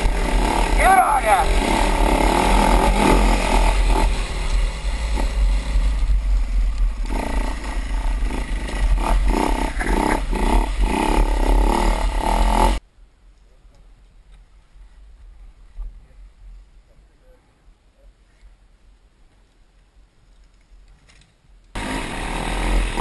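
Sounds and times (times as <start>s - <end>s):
heavy low rumble: 0.0s - 12.8s
motorbike engine revving: 0.0s - 12.8s, 21.8s - 23.0s.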